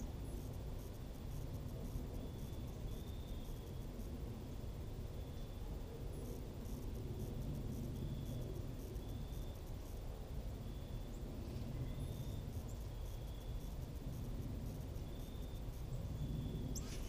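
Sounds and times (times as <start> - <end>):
cricket trill: 0.0 - 17.0
insects ticking: 0.0 - 17.0
low background rumble: 0.0 - 17.0.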